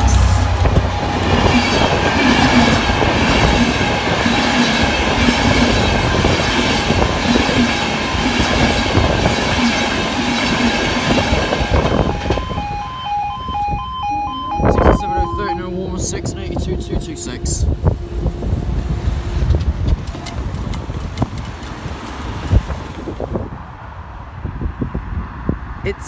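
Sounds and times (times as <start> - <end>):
train wheels clattering on rails: 0.0 - 12.5, 19.4 - 23.1
locomotive engine rumble: 0.0 - 23.6.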